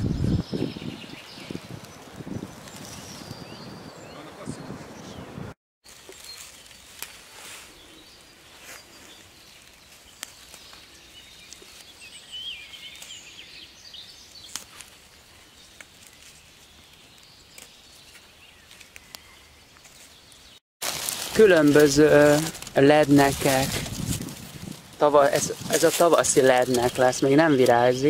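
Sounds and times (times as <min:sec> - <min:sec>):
bird singing: 0:00.2 - 0:05.4, 0:07.7 - 0:20.6, 0:25.0 - 0:28.0
leaves clicking and snapping: 0:01.6 - 0:03.3, 0:05.8 - 0:07.8, 0:08.7 - 0:13.6, 0:14.2 - 0:28.0
dry leaves rustling: 0:05.8 - 0:28.0.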